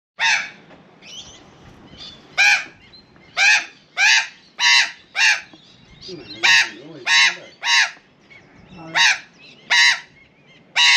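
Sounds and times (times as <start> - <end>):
magpie squawking: 2.3 - 5.6, 6.2 - 8.1, 8.8 - 10.9.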